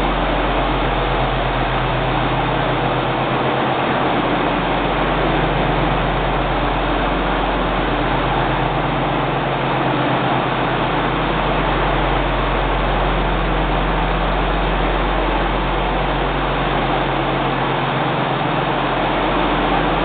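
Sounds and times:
tractor diesel engine idling: 0.0 - 20.0.

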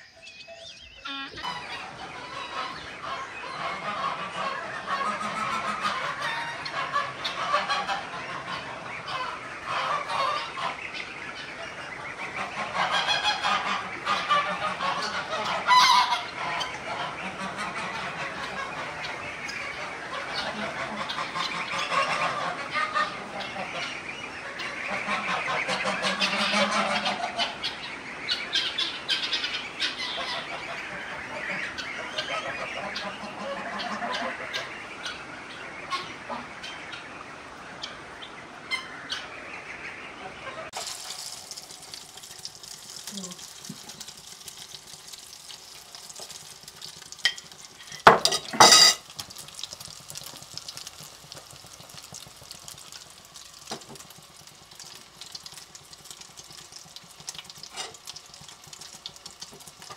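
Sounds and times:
geese honking: 0.0 - 40.8
meat frying in oil: 5.7 - 34.2, 40.7 - 59.9.

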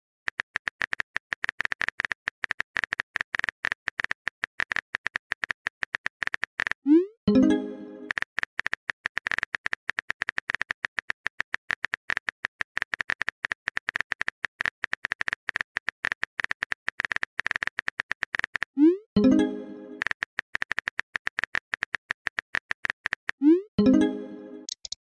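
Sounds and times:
message alert tone: 6.9 - 8.1, 18.8 - 20.1, 23.4 - 24.7
phone keyboard typing clicks: 24.6 - 25.0.

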